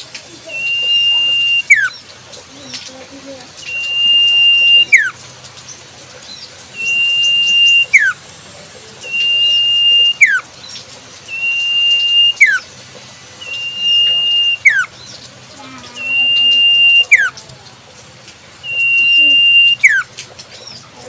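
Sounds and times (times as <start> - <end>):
bird whistled call: 0.4 - 2.1, 3.6 - 5.2, 6.7 - 8.2, 9.0 - 10.5, 11.2 - 12.7, 13.4 - 15.2, 15.9 - 17.4, 18.6 - 20.1.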